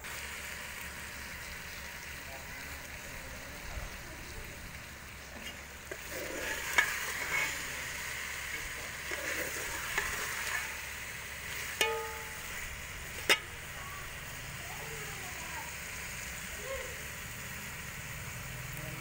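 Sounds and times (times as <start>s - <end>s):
food sizzling in metal pot: 0.0s - 19.0s
metal ladle stirring and scraping: 5.3s - 14.2s
ladle clinking against pot: 11.7s - 12.5s, 13.2s - 13.6s.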